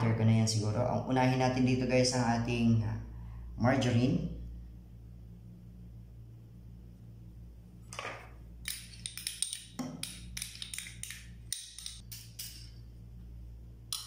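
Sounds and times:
spoon clicking against bowl: 8.6 - 12.7.

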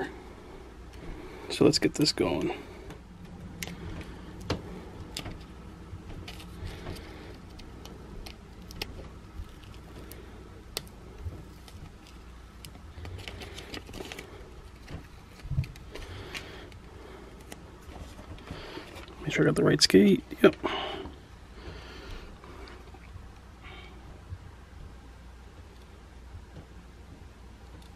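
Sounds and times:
vinyl film crackling: 0.8 - 19.4.

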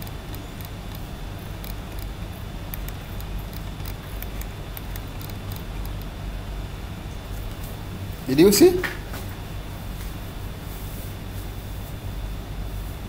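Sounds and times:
computer mouse clicks: 0.0 - 6.2
low room hum: 0.0 - 13.0.

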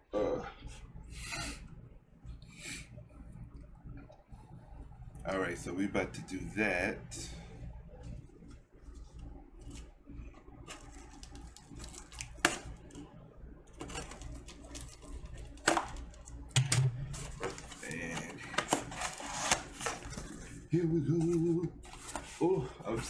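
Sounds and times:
cardboard scraping and rustling: 17.1 - 20.6.

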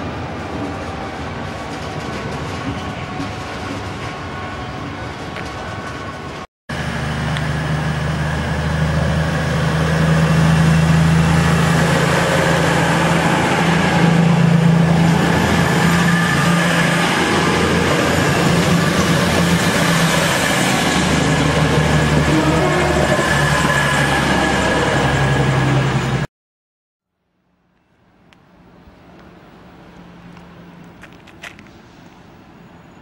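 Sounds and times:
train rushing past: 0.0 - 26.3
diesel engine drone: 6.7 - 19.5.

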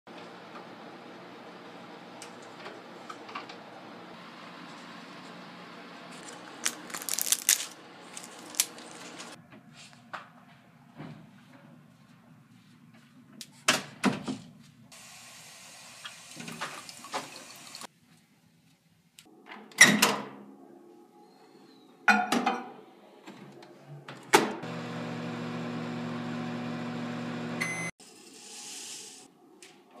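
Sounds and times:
microwave humming: 24.6 - 27.9.

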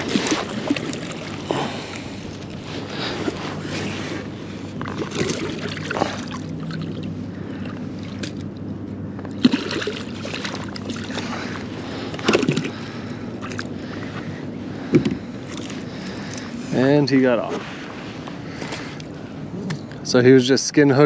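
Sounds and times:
short splashes and knocks: 0.0 - 1.5, 4.8 - 7.1, 8.0 - 8.5, 9.3 - 12.8
water sloshing against kayak: 0.0 - 8.6, 9.2 - 19.1.

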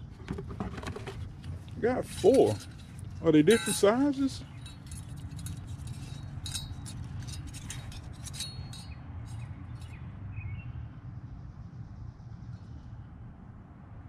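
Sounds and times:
metal clips clinking: 1.7 - 10.0.

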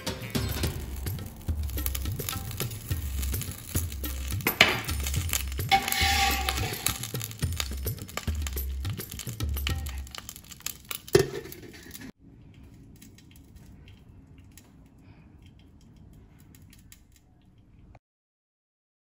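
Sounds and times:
sharp metallic clank: 0.0 - 10.1
charcoal crackling and sizzling: 0.0 - 17.7.

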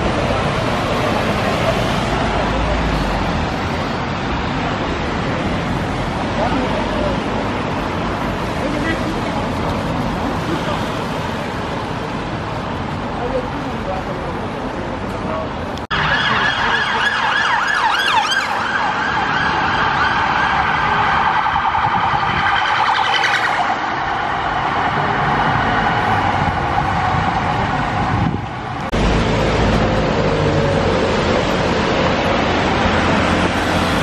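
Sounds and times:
low rumbling traffic: 0.0 - 34.0
emergency vehicle siren: 15.9 - 28.9.

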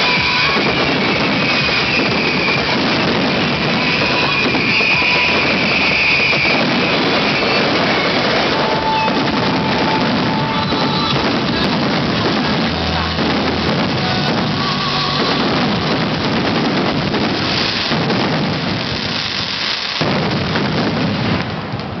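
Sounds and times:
music playing: 0.0 - 18.5
fireworks bursts: 0.0 - 22.0.

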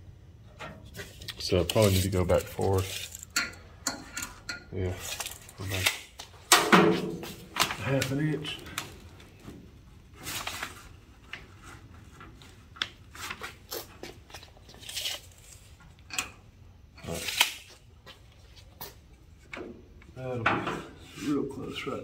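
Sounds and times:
paper rustling: 1.0 - 3.2, 10.2 - 15.7.

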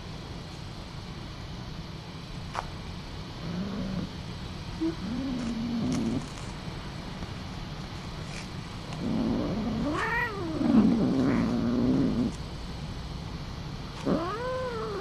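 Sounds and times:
cat moaning low: 4.8 - 6.3, 9.0 - 12.4, 14.0 - 15.0
cat yowling: 9.4 - 12.3, 14.1 - 15.0.

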